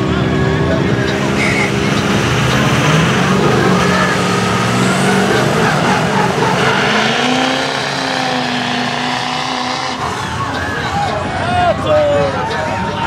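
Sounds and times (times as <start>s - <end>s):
truck engines at full throttle: 0.0s - 13.0s.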